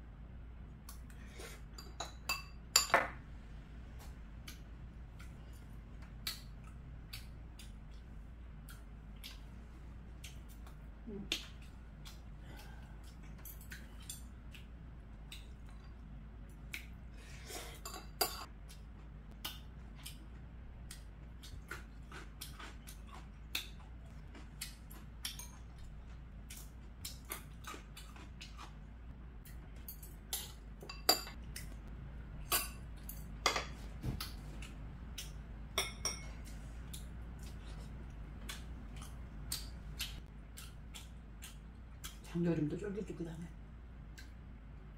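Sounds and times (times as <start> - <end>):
metal utensils clinking on bowls: 35.8 - 36.4.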